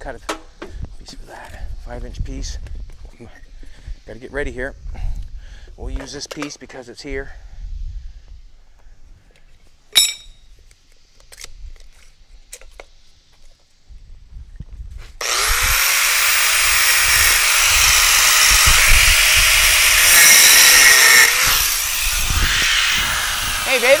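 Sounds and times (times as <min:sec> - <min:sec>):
metal clank: 0:10.0 - 0:10.4
power tool cutting steel: 0:15.2 - 0:24.0.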